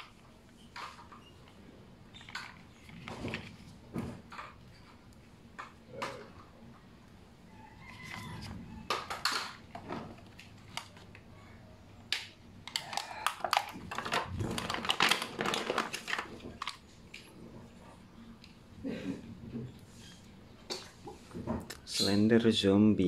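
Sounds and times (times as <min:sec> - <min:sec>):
plastic bag crinkling: 0:12.7 - 0:17.4.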